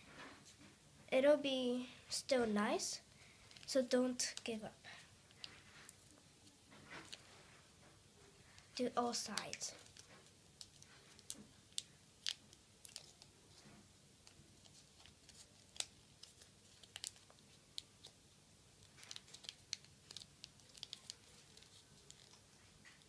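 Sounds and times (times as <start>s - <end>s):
paper crinkling and crackling: 5.3s - 7.6s, 8.5s - 23.0s.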